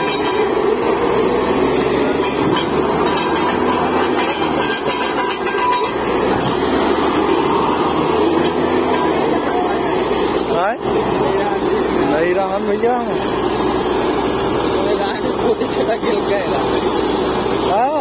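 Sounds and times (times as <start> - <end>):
drilling rig running: 0.0 - 18.0.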